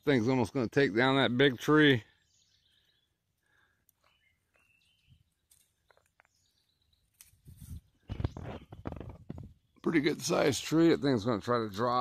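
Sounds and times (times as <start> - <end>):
faint bird chirps: 1.8 - 10.3.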